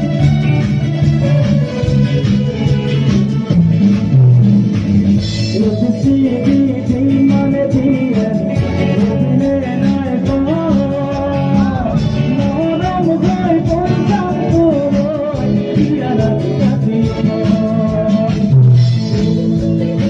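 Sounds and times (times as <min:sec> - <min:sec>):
live band playing: 0:00.0 - 0:20.0
person singing: 0:05.4 - 0:20.0.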